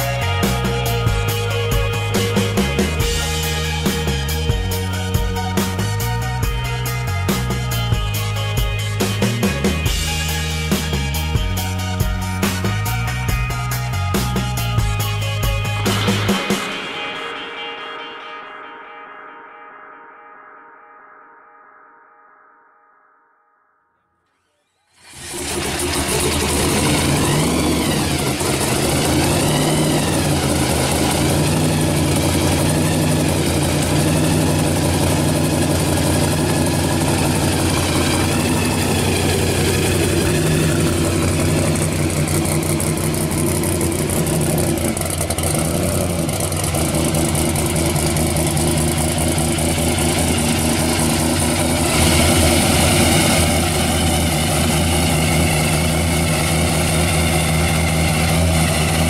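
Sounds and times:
car engine idling: 25.0 - 59.0.

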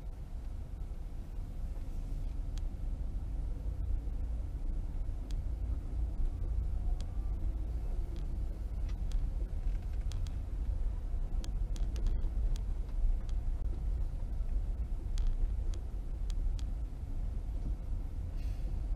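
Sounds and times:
car engine and tyres rumbling: 0.0 - 18.9
faint clicks: 1.8 - 2.7, 8.1 - 10.8, 11.4 - 13.8, 14.4 - 16.8.

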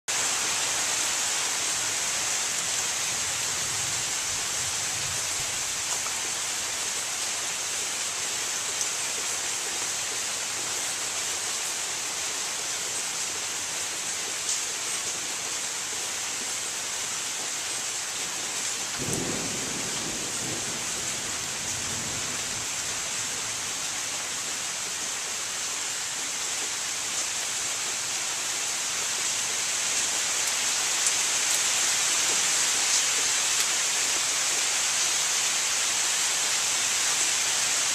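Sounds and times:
rain falling on leaves: 0.1 - 37.9
low rumble of thunder: 19.0 - 23.1.

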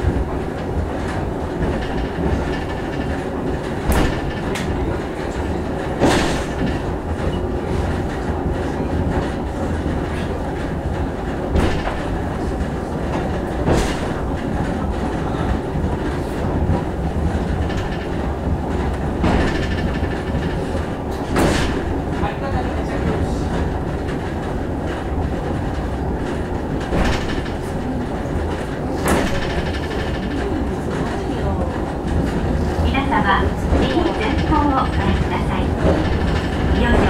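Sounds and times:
wheels rumbling on rails: 0.0 - 37.0
sharp clacks: 1.0 - 8.3, 23.6 - 32.5.

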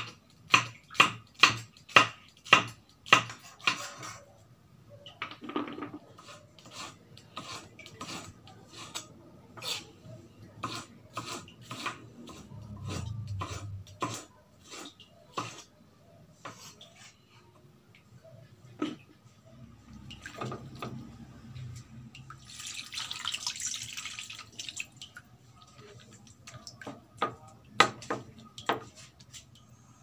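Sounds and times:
knife chopping on wooden block: 0.5 - 3.9.

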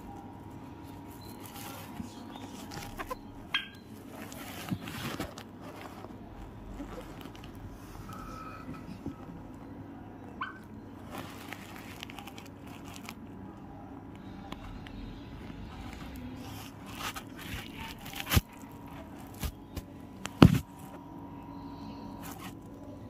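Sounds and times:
fabric rustling and scraping: 0.9 - 9.2, 11.0 - 13.2, 15.4 - 21.0, 22.2 - 22.7
parrot squeak: 10.4 - 10.7.

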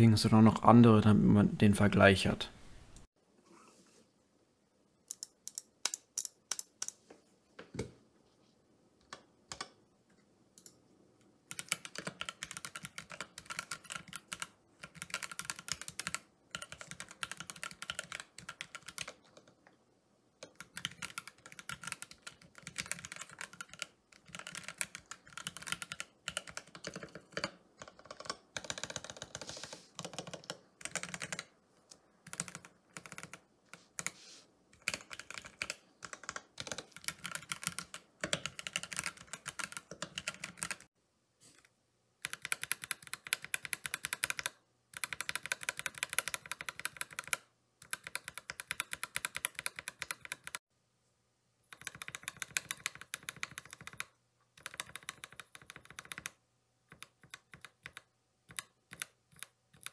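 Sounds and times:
typing on mechanical keyboard: 9.1 - 9.8, 11.5 - 19.6, 20.4 - 31.5, 32.2 - 34.2, 34.8 - 40.9, 42.2 - 50.6, 51.7 - 59.9.

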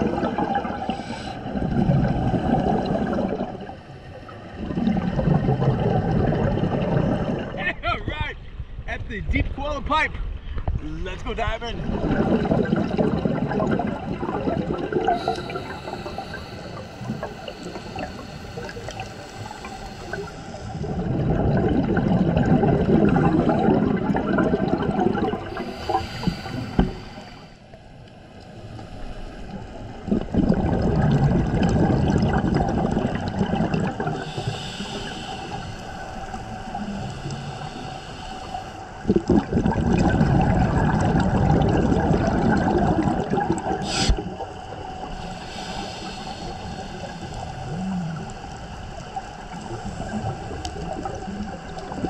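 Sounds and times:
scuba regulator bubbling underwater: 0.0 - 7.6, 11.8 - 27.5, 29.5 - 52.0.

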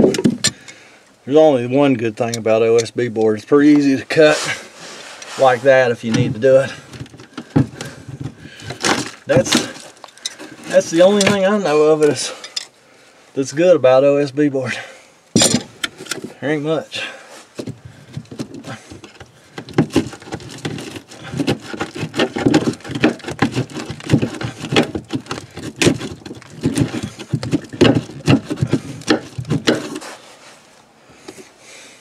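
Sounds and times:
blade scraping and cracking board: 5.2 - 11.5, 17.6 - 30.2.

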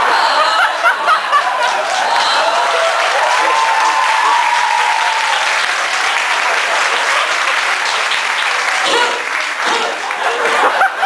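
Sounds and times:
audience clapping: 0.4 - 11.0.

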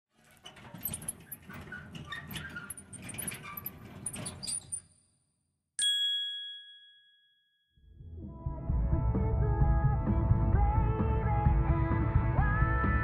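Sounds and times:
bright ding: 5.8 - 7.4
music: 7.8 - 13.0.

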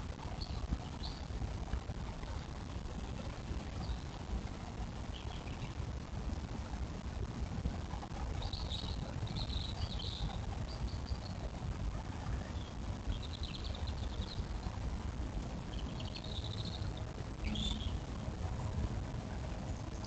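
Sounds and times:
steady low rumble: 0.0 - 20.0
songbird singing trilled phrases: 0.3 - 1.3, 8.4 - 11.4, 12.4 - 14.6, 15.6 - 18.1.

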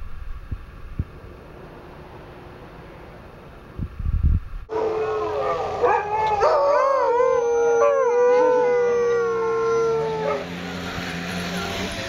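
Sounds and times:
dogs howling together: 4.7 - 10.6.

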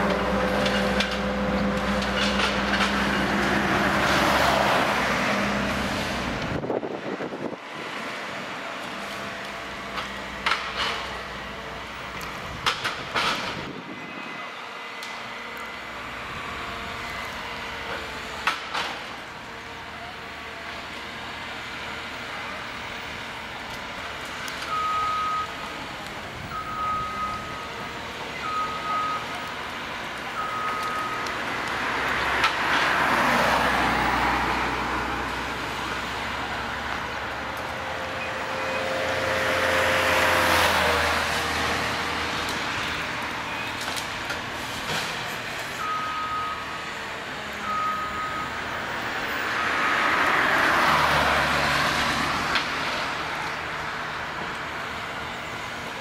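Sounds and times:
diesel engine running under load: 0.0 - 56.0
reversing alarm beeps: 24.7 - 25.6, 26.5 - 27.7, 28.4 - 29.3, 30.4 - 31.3, 45.8 - 46.9, 47.6 - 48.8.

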